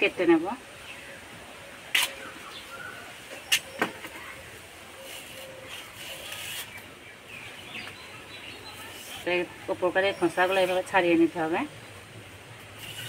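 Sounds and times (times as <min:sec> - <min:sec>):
stalk snapping against blade: 0:01.9 - 0:02.2
stalk skin being stripped: 0:05.0 - 0:06.9.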